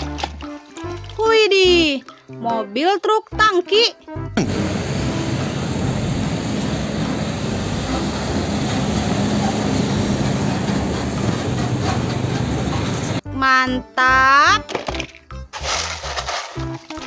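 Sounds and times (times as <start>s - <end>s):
truck engine droning: 4.4s - 13.2s
tyre and road noise: 4.4s - 13.2s.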